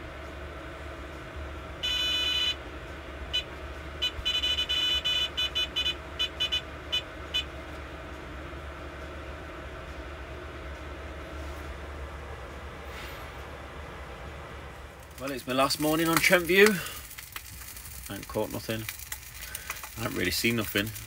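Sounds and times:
electronic bite alarm beeping: 0:01.8 - 0:02.6, 0:03.3 - 0:07.5.

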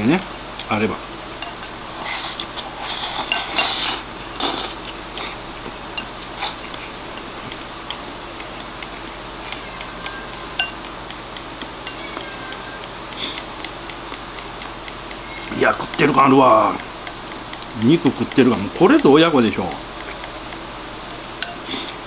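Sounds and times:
chopsticks scraping ceramic bowl: 0:01.4 - 0:05.3, 0:06.0 - 0:07.6.

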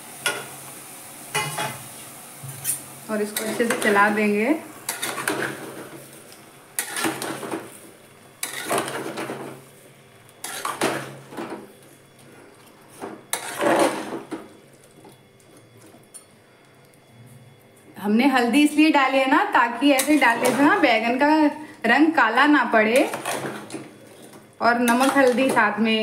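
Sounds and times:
spatula scraping in a pot: 0:04.9 - 0:05.9, 0:06.8 - 0:07.5, 0:08.4 - 0:09.3, 0:10.4 - 0:11.2, 0:12.9 - 0:14.3, 0:22.9 - 0:25.6.

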